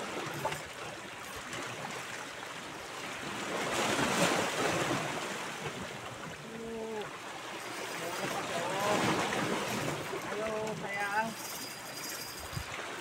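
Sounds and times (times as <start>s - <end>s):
sea waves lapping against rocks: 0.0s - 13.0s.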